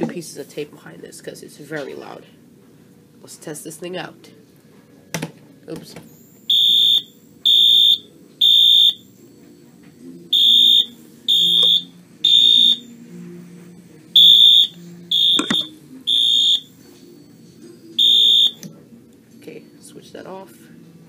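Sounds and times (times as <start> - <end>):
fire alarm horn beeping: 6.5 - 9.1, 10.3 - 12.9, 14.2 - 16.7, 18.0 - 18.6
knock: 15.4 - 15.7.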